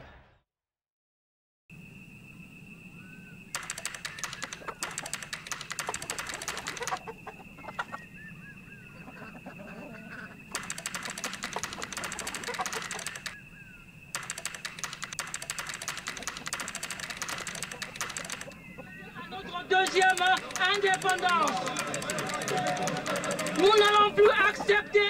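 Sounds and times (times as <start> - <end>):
keyboard typing: 3.6 - 7.0, 10.5 - 13.4, 14.1 - 18.7, 19.7 - 24.6
chickens clucking: 4.0 - 13.5, 14.6 - 25.0.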